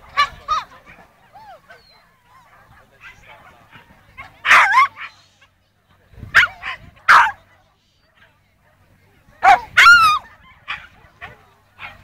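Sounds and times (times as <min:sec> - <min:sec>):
dog barking: 0:04.2 - 0:05.2, 0:06.3 - 0:07.4, 0:09.4 - 0:12.0.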